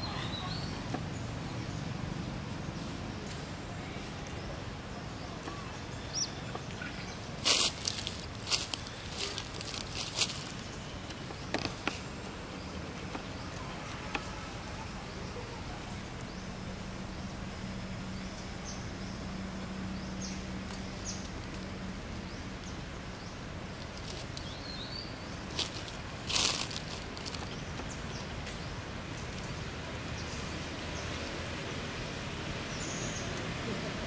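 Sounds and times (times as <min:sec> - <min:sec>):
background hiss: 0:00.0 - 0:34.0.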